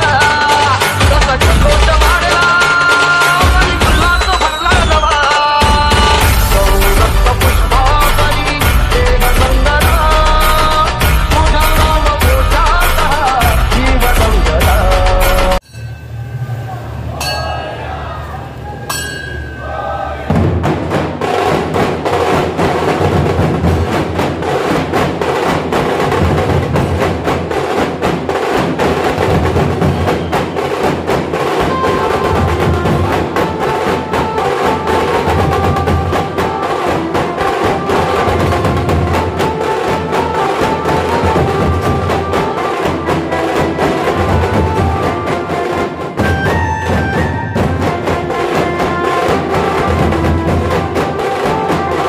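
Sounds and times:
drums playing fast rhythm: 0:00.0 - 0:15.6, 0:20.3 - 0:52.0
pitched melody line: 0:31.5 - 0:52.0.

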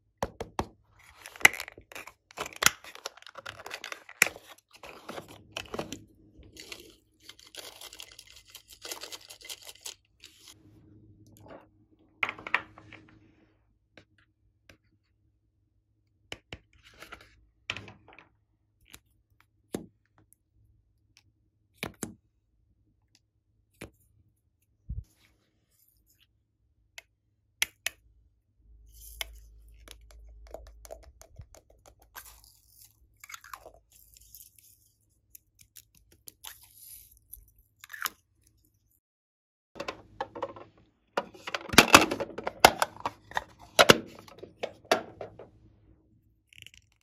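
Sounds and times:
plastic clicking and tapping: 0:39.8 - 0:45.5
plastic clicks: 0:39.8 - 0:45.5.

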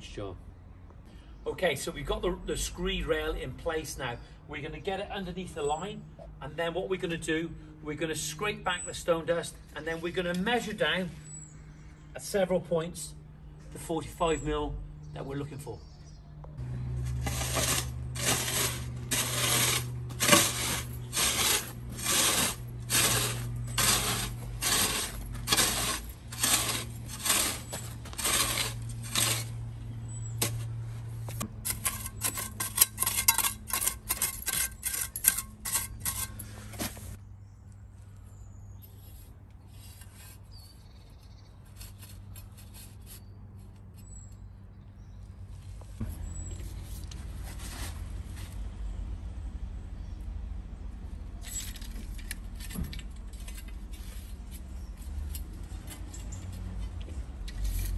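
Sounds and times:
spade scraping stone dust: 0:16.9 - 0:37.2, 0:41.7 - 0:44.3, 0:57.5 - 0:57.9
trowel scraping stone dust: 0:17.0 - 0:37.2, 0:38.8 - 0:40.7, 0:41.6 - 0:44.4, 0:57.5 - 0:57.9.

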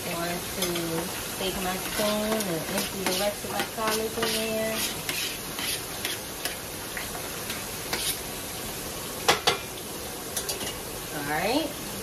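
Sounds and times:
pork chops sizzling in grease: 0:00.0 - 0:12.0
spoon scraping and tapping colander: 0:01.8 - 0:08.2.

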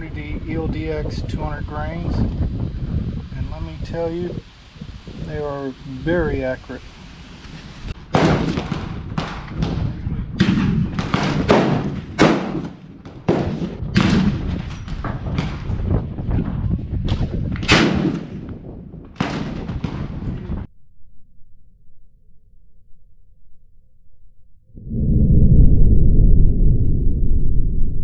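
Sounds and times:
gunshots with echo: 0:08.1 - 0:15.7, 0:17.6 - 0:18.5.

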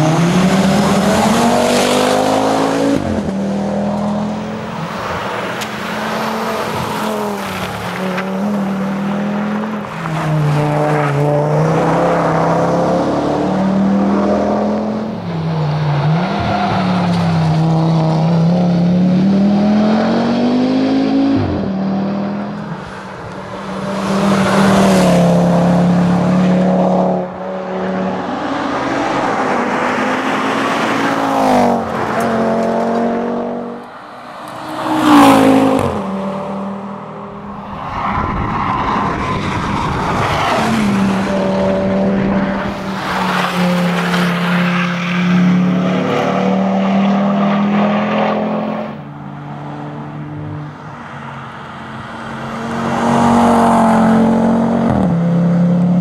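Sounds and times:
rally car engine revving: 0:00.0 - 0:22.9.

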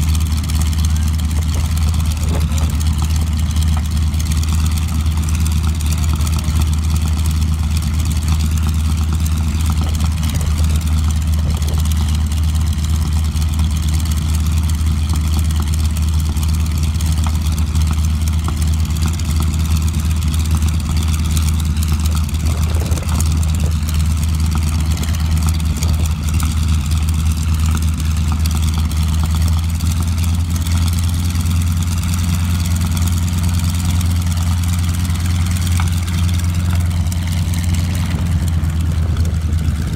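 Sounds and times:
aircraft radial engine idling: 0:00.0 - 0:39.9.

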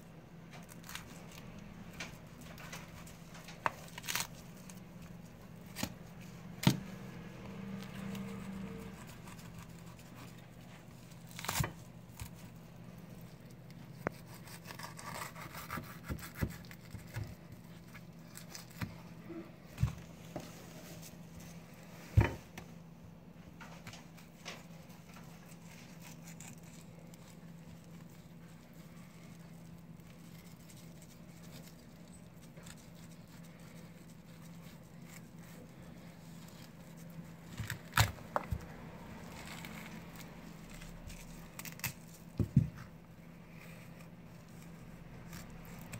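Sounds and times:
knife cutting fish and bone: 0:10.9 - 0:12.5, 0:14.0 - 0:19.0, 0:32.4 - 0:43.0.

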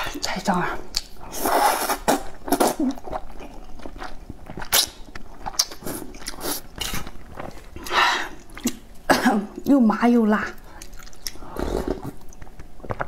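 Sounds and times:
person slurping noodles: 0:01.3 - 0:02.8.

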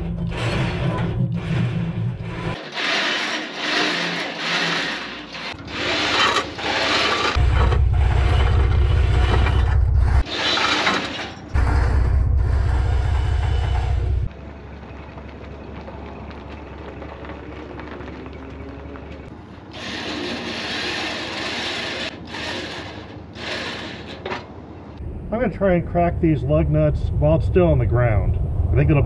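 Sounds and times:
heavy steel parts scraping: 0:00.0 - 0:14.3, 0:19.5 - 0:24.7
low rumble: 0:07.4 - 0:10.3, 0:11.5 - 0:16.7, 0:25.0 - 0:29.0.

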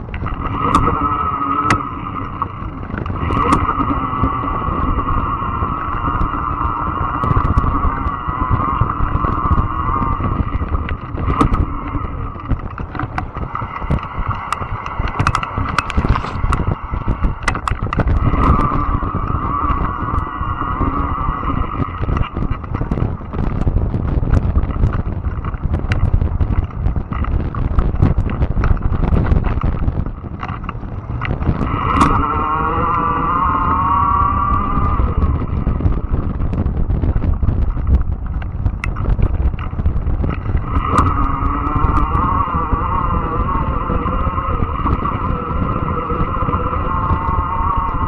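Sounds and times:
high motor whine: 0:00.0 - 0:48.0
tyre rumble: 0:00.0 - 0:48.0
wind on microphone: 0:00.0 - 0:48.0
clicks and rattles: 0:06.0 - 0:32.3.

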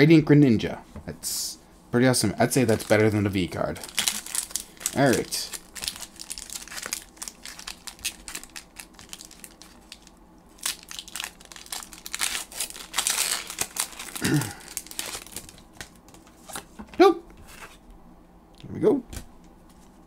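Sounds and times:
foil wrapper crinkling: 0:02.5 - 0:16.6.

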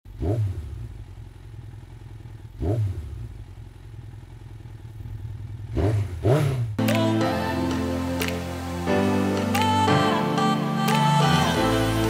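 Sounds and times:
motorcycle engine idling: 0:00.1 - 0:06.8
motorcycle throttle blips: 0:00.1 - 0:06.8.

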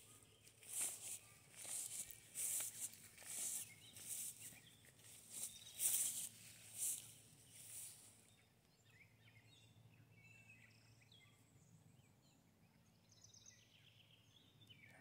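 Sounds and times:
footsteps: 0:00.0 - 0:08.1
faint high bird chirping: 0:00.0 - 0:15.0.

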